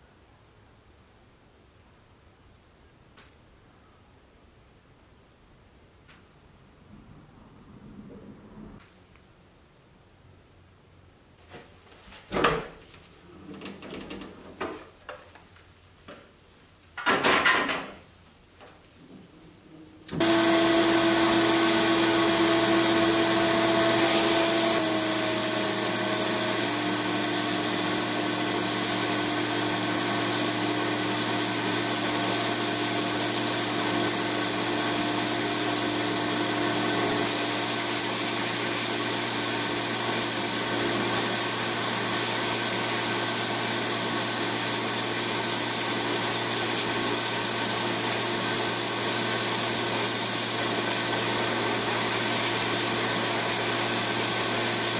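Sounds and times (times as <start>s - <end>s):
motor hum: 20.1s - 37.6s.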